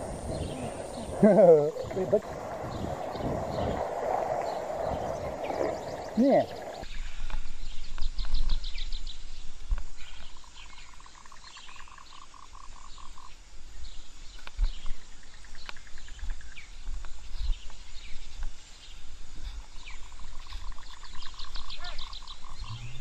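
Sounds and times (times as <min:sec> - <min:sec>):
animals calling with pulsed trills: 0:19.8 - 0:23.0.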